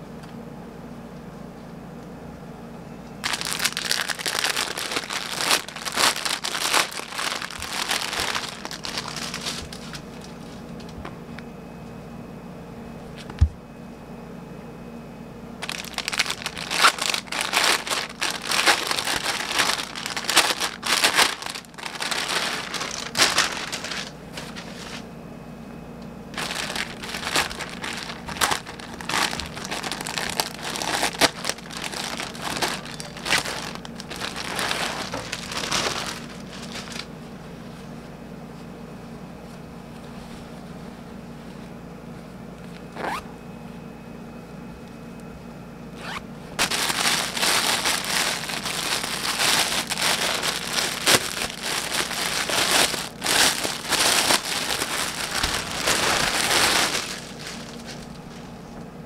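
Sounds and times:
plastic bags crinkling: 0:03.2 - 0:10.6, 0:15.6 - 0:25.0, 0:26.3 - 0:37.2, 0:46.0 - 0:58.6.

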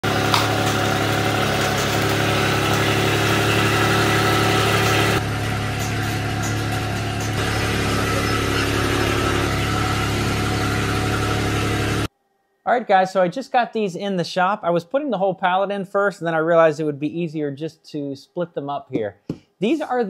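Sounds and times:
loader engine running: 0:00.0 - 0:12.1.

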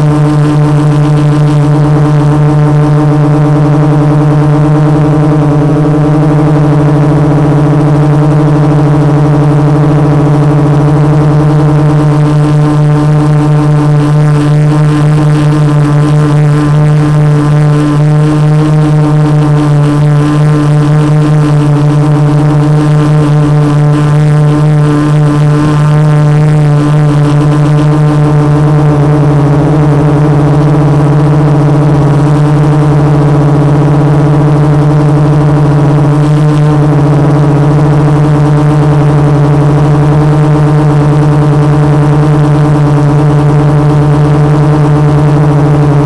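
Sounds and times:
drone motors buzzing: 0:00.0 - 0:46.0.

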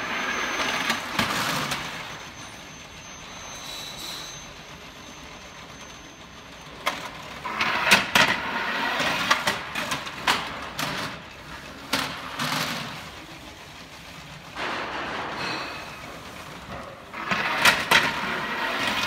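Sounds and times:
metal trays rattling and rolling: 0:06.7 - 0:19.0.

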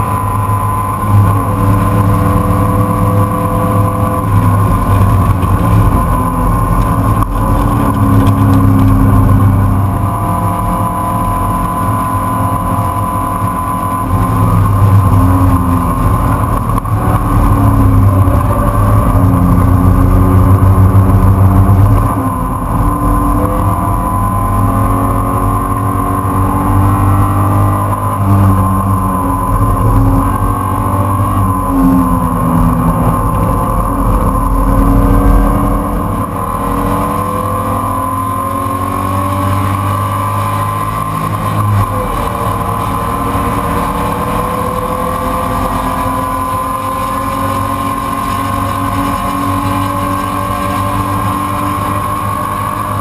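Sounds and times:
race car engine revving: 0:00.0 - 0:53.0.

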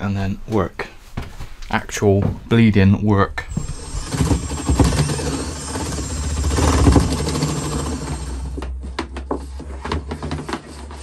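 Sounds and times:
power drill boring into wall: 0:03.5 - 0:08.7.

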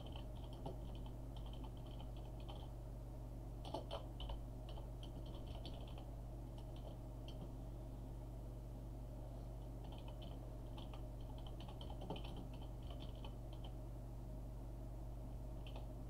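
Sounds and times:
typing on computer keyboard: 0:00.0 - 0:02.7, 0:03.6 - 0:07.5, 0:09.8 - 0:13.7, 0:15.6 - 0:15.9
steady low hum: 0:00.0 - 0:16.0.

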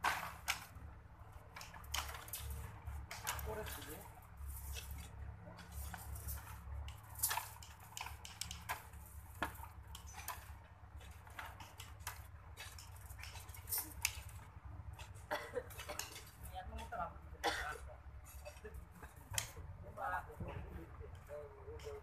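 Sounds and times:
wire mesh clicking: 0:04.6 - 0:14.4.

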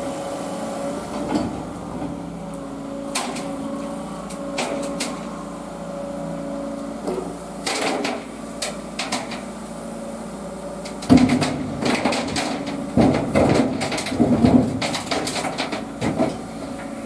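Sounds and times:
diesel excavator engine running: 0:00.0 - 0:17.0
knocks and metal clanks: 0:01.2 - 0:02.2, 0:03.1 - 0:03.6, 0:04.4 - 0:05.3, 0:07.0 - 0:09.5, 0:10.8 - 0:17.0
heavy clattering impacts: 0:11.0 - 0:16.5.

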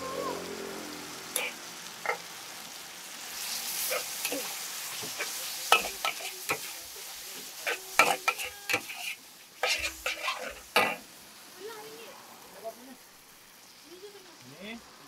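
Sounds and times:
food sizzling in a wok: 0:00.0 - 0:15.0
metal spatula scraping a wok: 0:01.4 - 0:02.3, 0:03.2 - 0:11.1.

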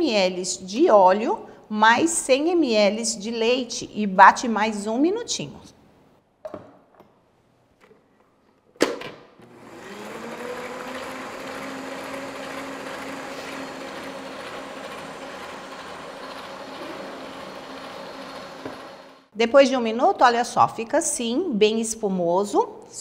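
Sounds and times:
mixer motor whisking batter: 0:09.4 - 0:19.3.

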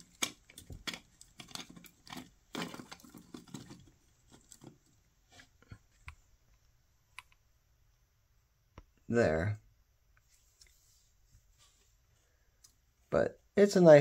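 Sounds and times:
plastic clicks and rattles: 0:00.0 - 0:05.0.

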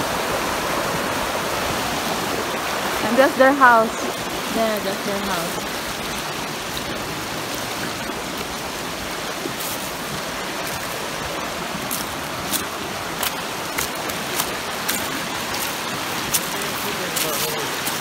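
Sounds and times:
river rushing over rocks: 0:00.0 - 0:18.0.

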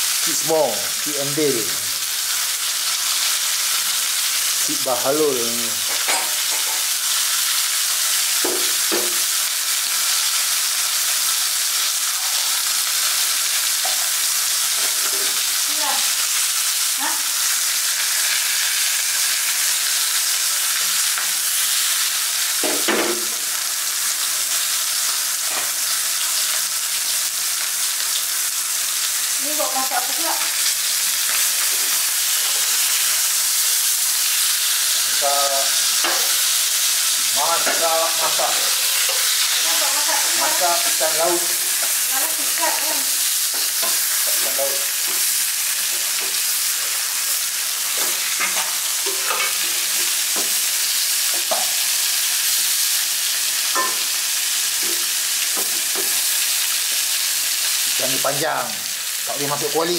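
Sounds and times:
fish sizzling in oil: 0:00.0 - 0:59.9
spatula scraping pan: 0:47.9 - 0:50.2.

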